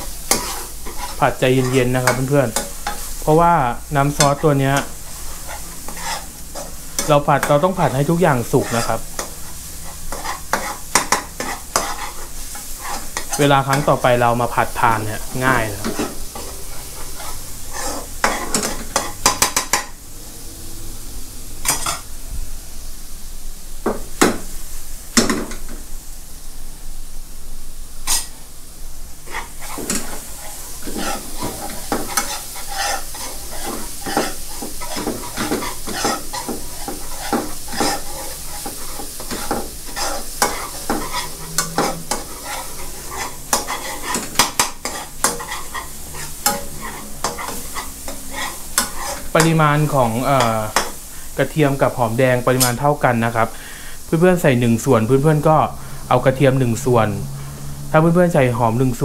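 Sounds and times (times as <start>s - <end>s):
metal spoon scraping a pan: 0.0s - 20.0s, 21.6s - 22.1s, 28.0s - 28.4s, 29.2s - 51.1s
garlic sizzling in oil: 0.0s - 59.0s.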